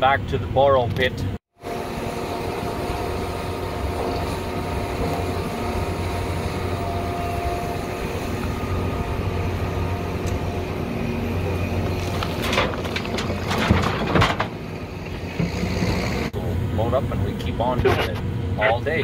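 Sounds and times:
heavy diesel engines running: 1.6s - 19.0s
rocks clattering into dump bed: 11.8s - 14.7s.

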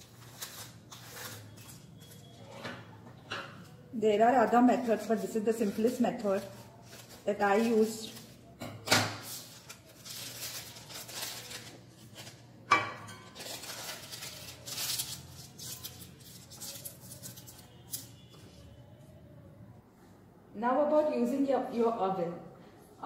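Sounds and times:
paper rustling: 0.0s - 2.3s, 4.7s - 8.4s, 9.2s - 12.6s, 13.3s - 18.4s
scissors cutting paper: 0.0s - 2.3s, 13.4s - 18.3s.

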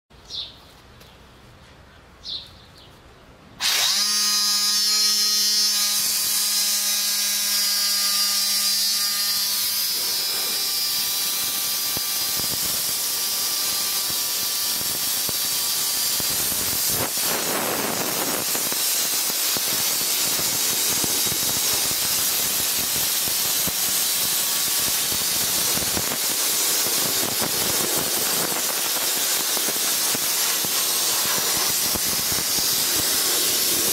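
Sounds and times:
loud air blaster hiss: 8.9s - 33.9s.

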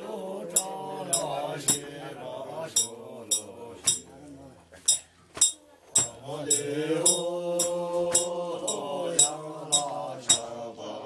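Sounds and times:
metallic clink: 2.8s - 4.0s, 4.9s - 10.5s.

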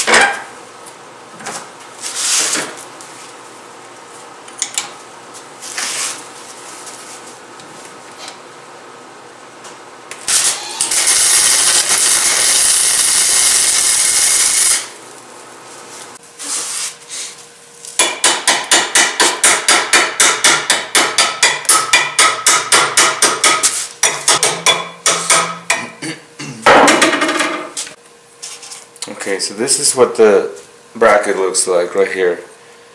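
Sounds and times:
welding gun crackling hiss: 10.1s - 18.0s, 23.6s - 24.0s.

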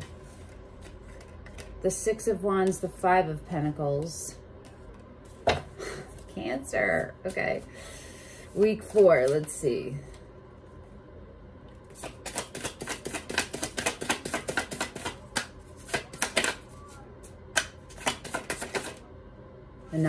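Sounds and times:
cards being shuffled: 12.0s - 16.8s, 17.6s - 19.0s.

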